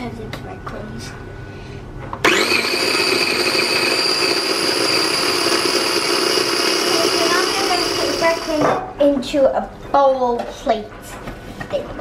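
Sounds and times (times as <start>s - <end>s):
food processor whining: 2.2s - 8.8s.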